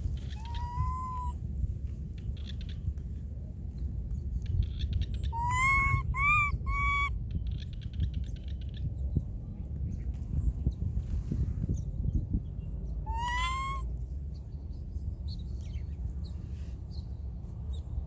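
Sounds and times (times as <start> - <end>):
steady low rumble: 0.0 - 18.0
baby monkey coo calls: 0.1 - 1.4, 5.2 - 7.2, 13.0 - 13.9.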